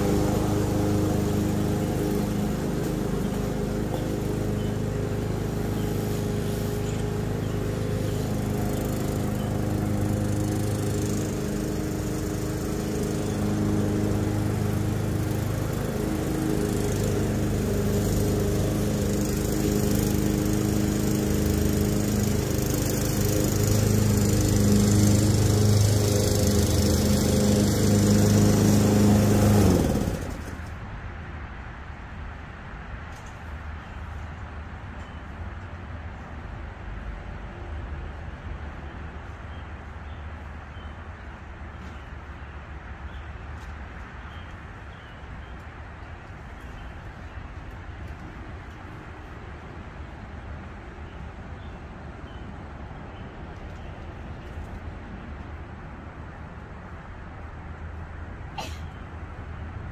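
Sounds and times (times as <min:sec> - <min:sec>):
lawn mower engine running: 0:00.0 - 0:30.8.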